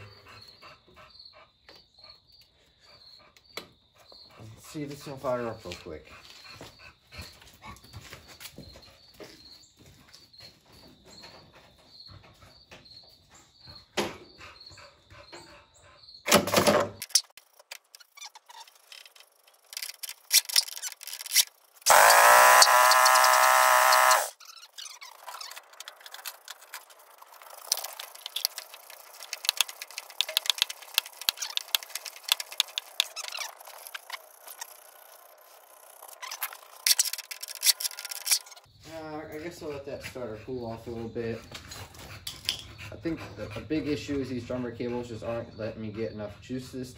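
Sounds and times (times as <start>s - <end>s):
electric starter whining: 18.9s - 38.6s.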